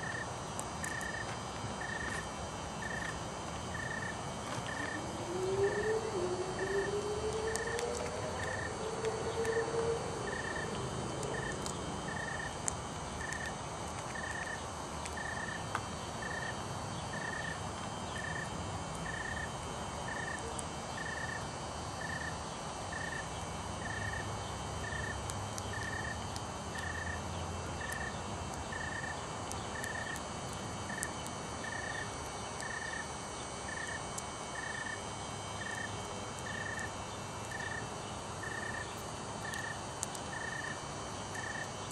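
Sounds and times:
cricket chirping: 0.0 - 41.9
low hum rising in pitch: 2.8 - 13.8.

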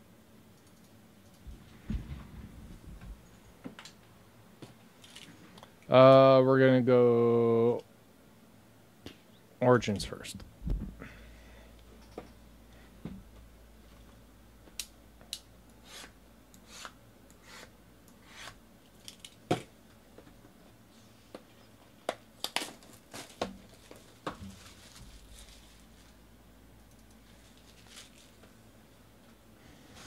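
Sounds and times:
plastic wrap crinkling: 22.4 - 26.2, 27.2 - 28.5.

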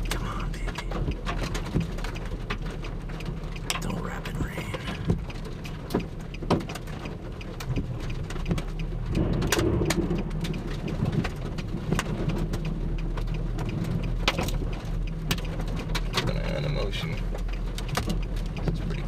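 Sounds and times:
raindrops striking microphone: 0.0 - 19.0
low rumble: 7.2 - 19.0.

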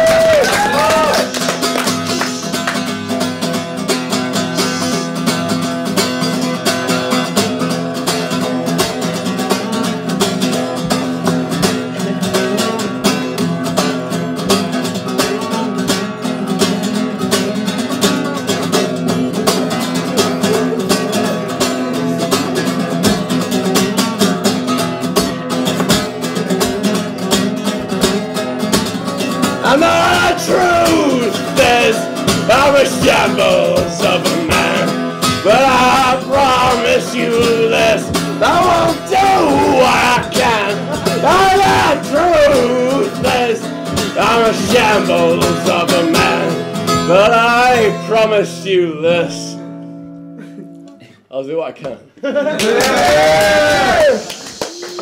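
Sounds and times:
man singing: 0.0 - 5.4, 8.2 - 49.7
acoustic guitar strumming: 0.0 - 51.1.

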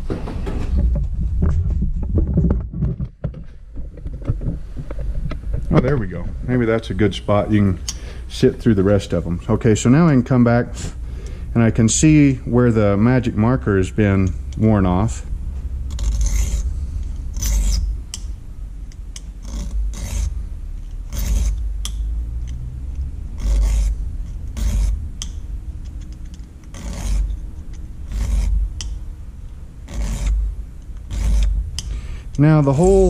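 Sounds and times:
file rasping on saw teeth: 15.9 - 18.3, 19.2 - 22.0, 23.3 - 26.0, 26.6 - 29.0, 29.8 - 32.0.

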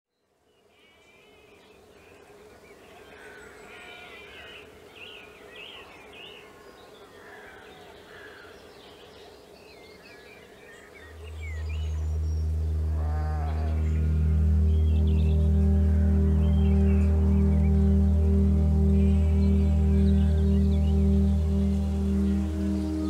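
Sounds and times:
songbirds chirping: 0.1 - 23.0
insect buzz: 11.2 - 23.0
music with deep bass: 11.2 - 23.0.

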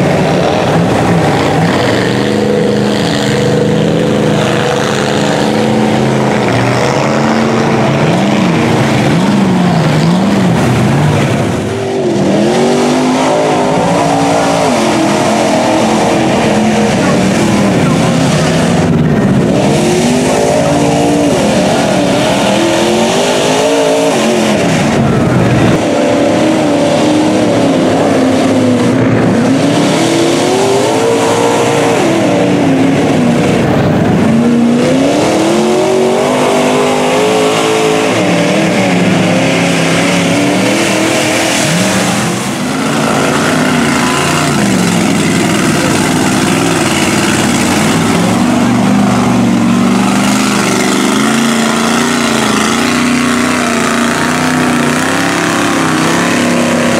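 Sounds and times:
truck engines revving: 0.0 - 56.9
mud and water spraying: 34.9 - 56.9.

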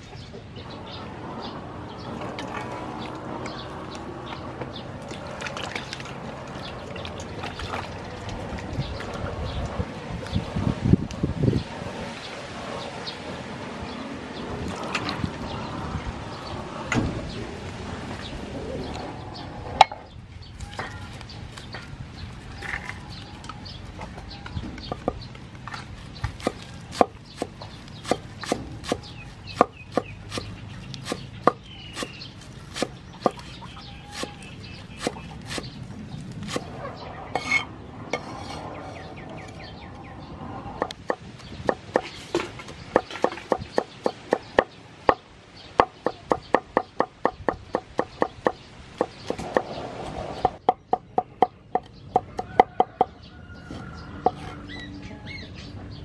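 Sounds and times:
knife chopping on wooden board: 26.3 - 34.4, 35.0 - 35.7.

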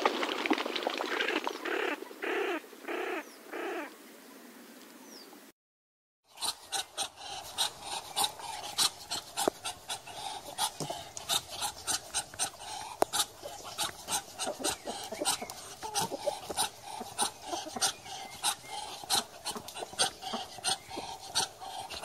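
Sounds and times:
ducks hissing: 1.1 - 3.9, 6.3 - 22.0.

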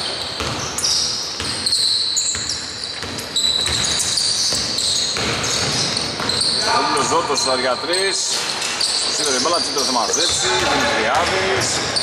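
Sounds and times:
sneakers squeaking on court: 0.0 - 12.0
basketball bouncing: 0.2 - 6.7, 10.1 - 12.0.

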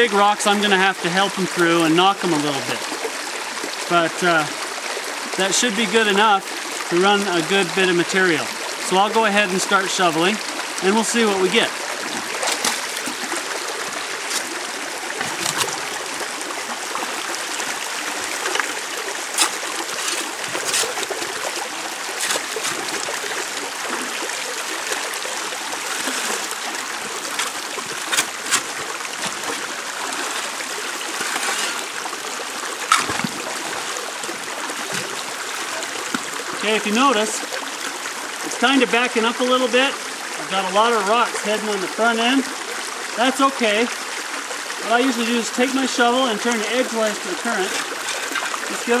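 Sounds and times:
creek water running: 0.0 - 49.0
shovel digging gravel and rocks: 12.4 - 13.2, 14.2 - 14.6, 15.2 - 15.9, 18.4 - 23.4, 25.8 - 32.0, 32.8 - 33.5, 47.4 - 49.0.

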